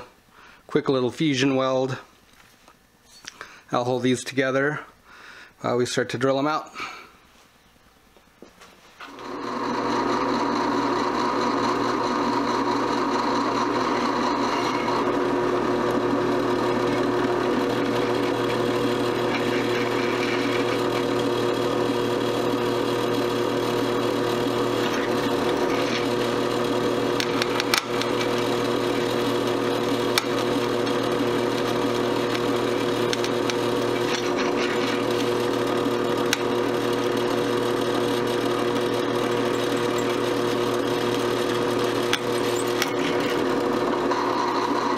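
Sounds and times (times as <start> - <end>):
drill press motor hum: 9.0 - 44.9
drill bit grinding metal: 9.1 - 44.9.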